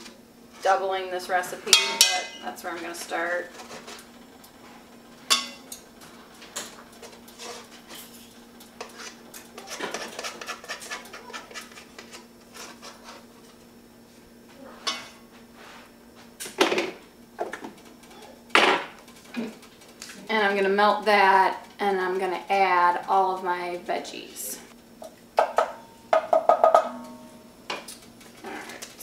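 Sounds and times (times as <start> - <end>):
kitchenware knocking: 25.4 - 27.3
low hum: 26.7 - 27.8.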